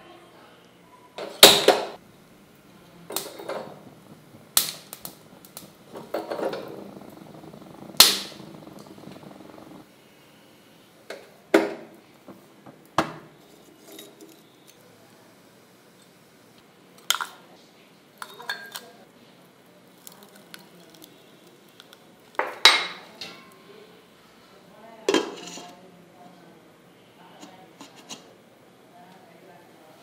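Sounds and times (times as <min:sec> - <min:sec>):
gas burner hiss: 0:01.4 - 0:09.9.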